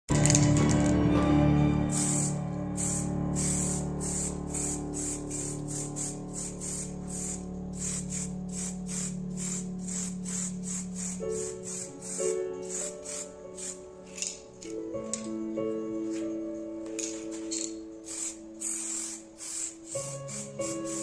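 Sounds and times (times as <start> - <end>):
background music: 0.1 - 21.0
spray-paint can hissing: 1.9 - 14.4, 17.5 - 21.0.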